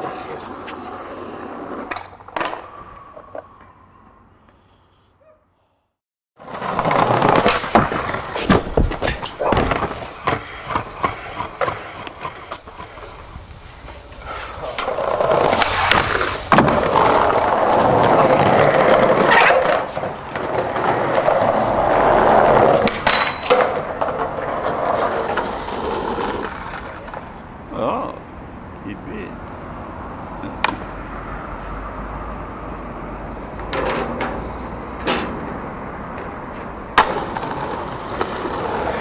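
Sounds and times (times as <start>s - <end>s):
skateboard wheels rolling on wood: 6.4s - 27.6s, 33.4s - 39.0s.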